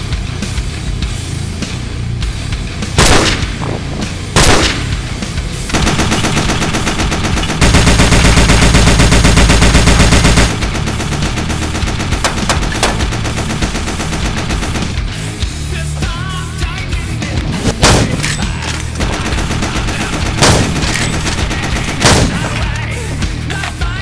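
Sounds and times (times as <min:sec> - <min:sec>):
heavy metal music: 0:00.0 - 0:24.0
machine-gun firing: 0:03.0 - 0:03.6, 0:04.4 - 0:05.1, 0:05.7 - 0:15.2, 0:17.7 - 0:22.8.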